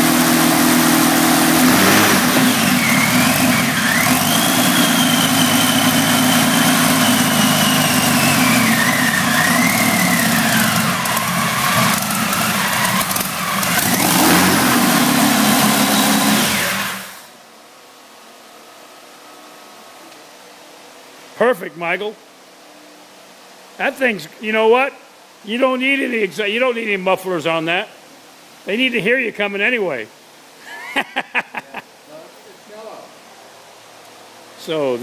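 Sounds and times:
aircraft engine running: 0.0s - 17.2s.

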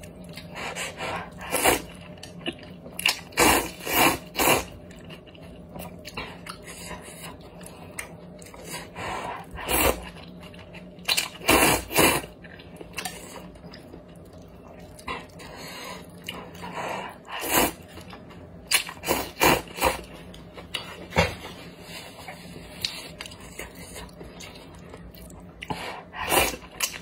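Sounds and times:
person slurping noodles: 3.3s - 4.8s, 11.4s - 12.3s.

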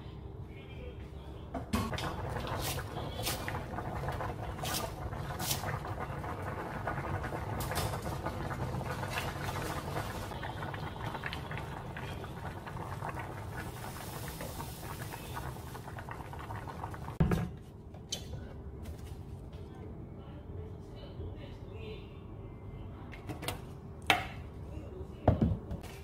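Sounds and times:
stew bubbling: 1.9s - 17.2s.

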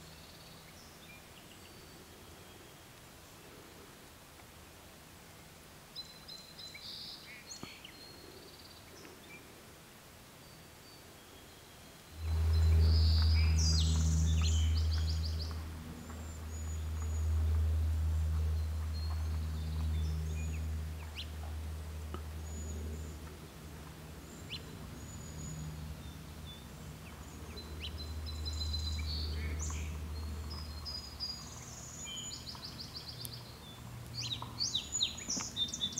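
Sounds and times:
small birds chirping: 5.9s - 9.6s, 10.3s - 35.9s
low engine hum: 12.0s - 35.9s.

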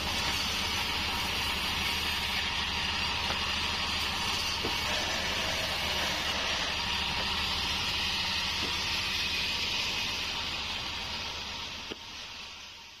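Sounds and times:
low drive hum: 0.0s - 13.0s
saw blade hissing: 4.0s - 12.9s.

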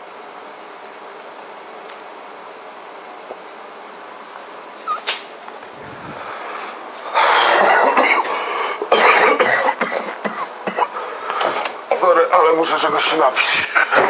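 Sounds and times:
man coughing and gasping: 7.4s - 11.1s.

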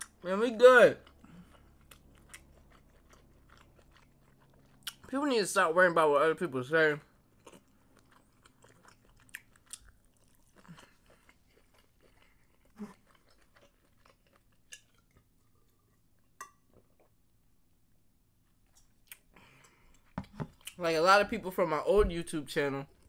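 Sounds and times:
chewing crunchy food: 0.0s - 5.2s, 7.1s - 17.2s.

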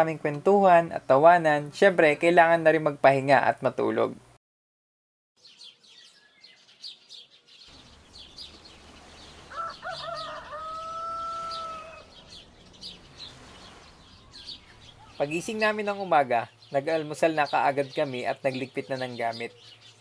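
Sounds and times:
small birds chirping: 5.4s - 20.0s
rooster crowing: 9.2s - 12.6s.

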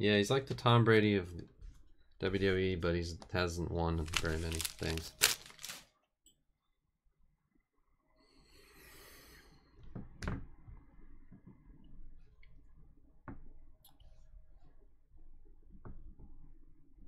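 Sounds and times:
foil wrapper crinkling: 4.0s - 5.9s.

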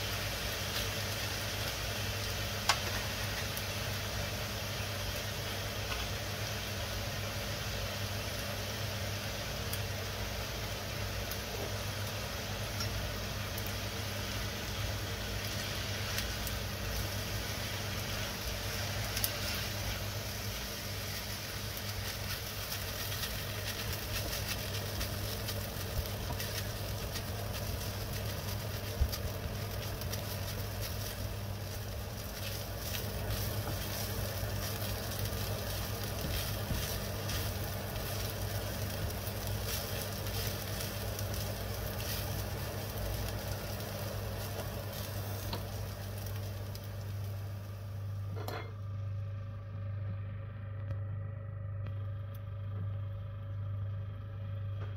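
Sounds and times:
food sizzling in oil: 0.0s - 48.6s
low hum: 16.2s - 54.9s.

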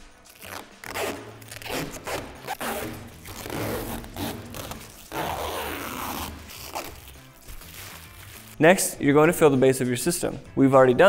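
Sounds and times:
plastic film peeling and crinkling: 0.2s - 8.6s.

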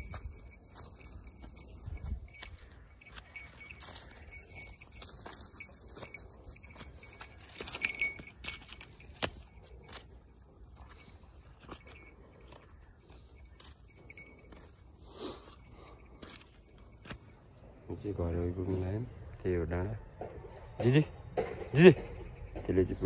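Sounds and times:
footsteps on dry leaves and dirt: 0.0s - 17.8s
light metallic jingling: 0.0s - 23.0s.

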